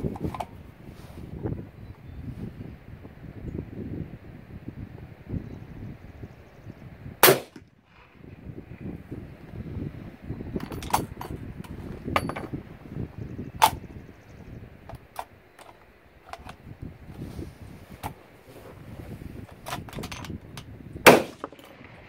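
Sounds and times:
suppressed gunshot: 0:07.2 - 0:07.6, 0:21.0 - 0:21.5.

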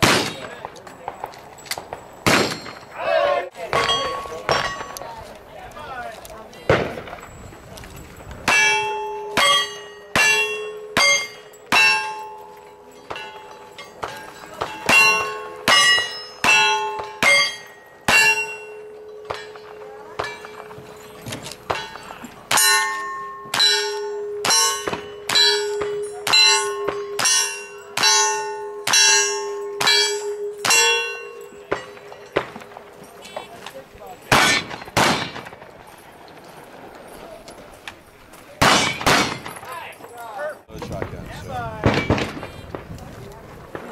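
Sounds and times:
gunshots: 0:00.0 - 0:02.9, 0:06.7 - 0:07.3, 0:34.3 - 0:35.8, 0:38.6 - 0:39.8, 0:40.8 - 0:42.9
bullet clanging on steel target: 0:06.9 - 0:36.5.

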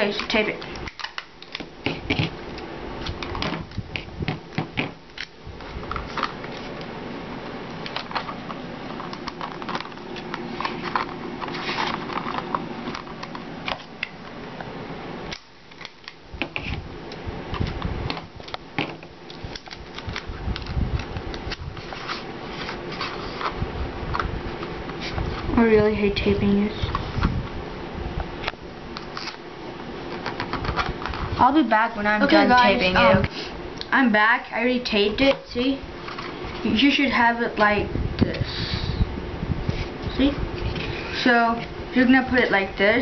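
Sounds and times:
low background hum: 0:00.0 - 0:43.0
adhesive tape clicking and sticking: 0:00.7 - 0:02.3, 0:15.3 - 0:16.7, 0:19.3 - 0:21.6
cardboard rustling: 0:07.9 - 0:13.9, 0:21.8 - 0:23.6.

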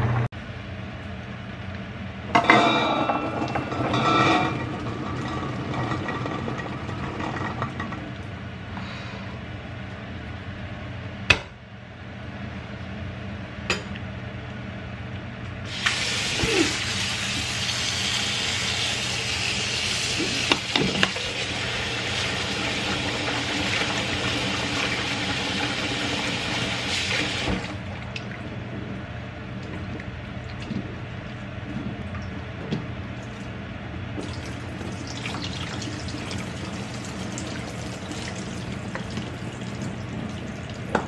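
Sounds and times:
water running into metal sink: 0:15.7 - 0:28.4, 0:34.2 - 0:41.0
low steady hum: 0:27.5 - 0:41.0.

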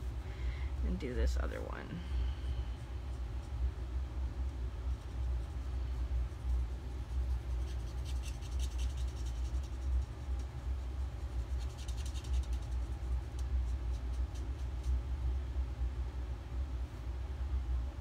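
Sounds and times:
furnace low rumble: 0:00.0 - 0:18.0
marker scratching on paper: 0:04.9 - 0:10.5.

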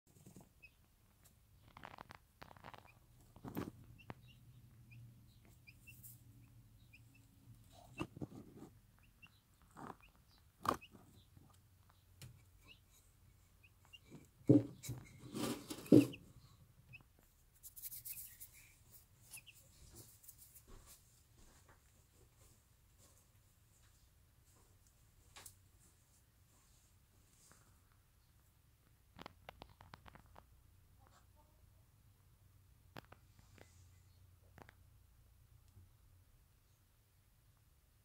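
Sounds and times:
faint chick peeps: 0:00.2 - 0:20.6, 0:29.2 - 0:31.8.

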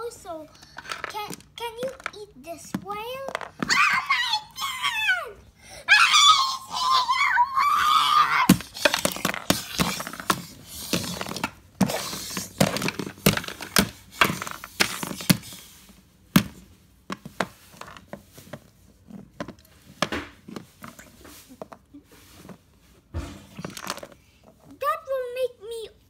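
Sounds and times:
objects knocking and rustling: 0:00.5 - 0:04.1, 0:08.5 - 0:15.7, 0:16.3 - 0:24.7.

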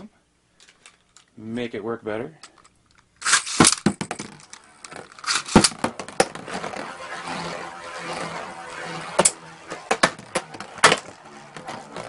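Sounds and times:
spinning tops clattering: 0:03.2 - 0:11.2
spinning tops whirring: 0:03.2 - 0:12.0.

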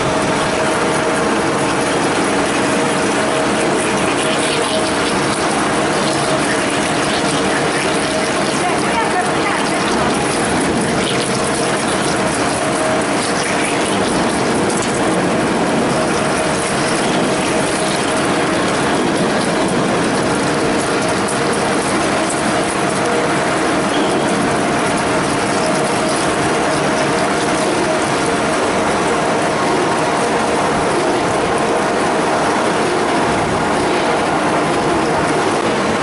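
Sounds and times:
drilling machine cutting metal: 0:00.0 - 0:36.0
mid-pitched machine whine: 0:00.0 - 0:36.0.

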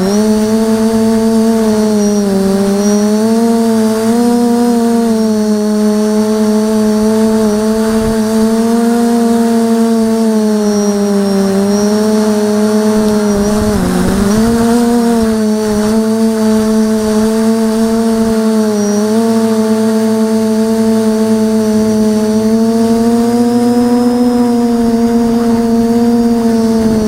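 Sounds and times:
quadcopter motors humming: 0:00.0 - 0:27.0.

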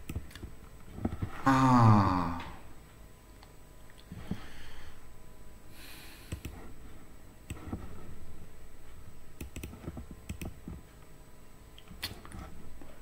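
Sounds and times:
computer mouse clicks: 0:06.3 - 0:06.6, 0:09.4 - 0:10.8.

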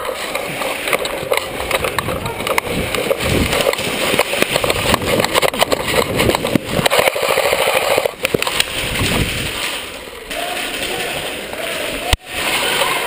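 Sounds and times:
rifle and gear rattling: 0:00.0 - 0:13.0.

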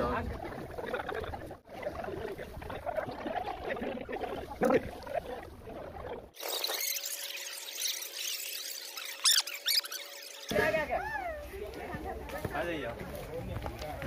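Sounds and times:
faint crowd murmur: 0:10.5 - 0:14.0.

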